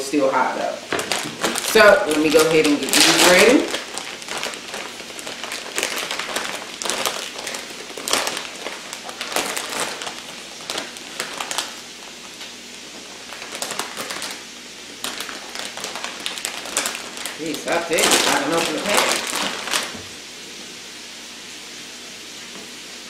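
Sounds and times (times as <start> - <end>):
plastic bag crinkling: 0.8 - 20.2.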